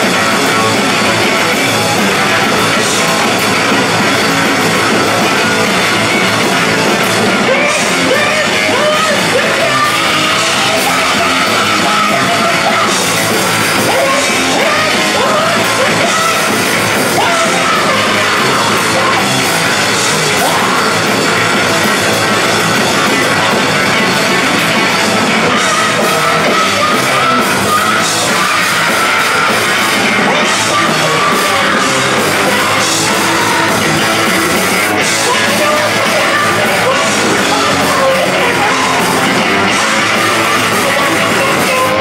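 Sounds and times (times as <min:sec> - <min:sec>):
punk rock band playing live: 0:00.0 - 0:42.0
woman yelling vocals: 0:25.4 - 0:34.1.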